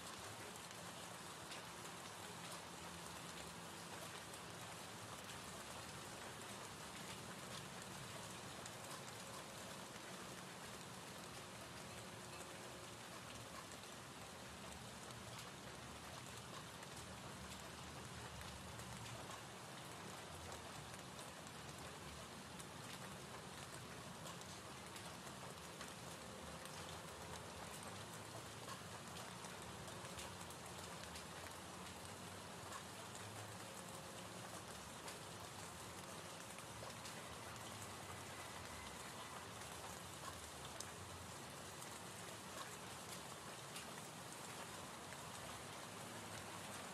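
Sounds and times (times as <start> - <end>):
raindrop ticks: 0.0 - 46.9.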